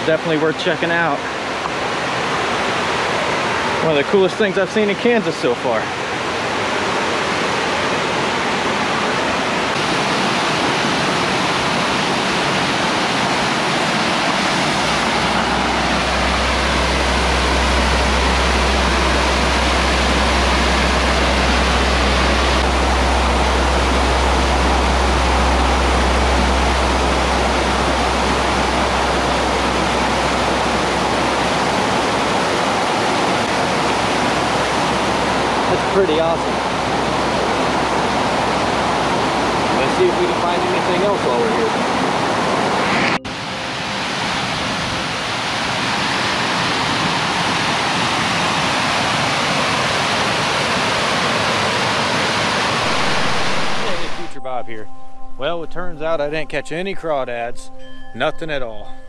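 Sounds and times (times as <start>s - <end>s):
waterfall rushing: 0.0s - 56.6s
deep low rumble: 14.9s - 35.7s.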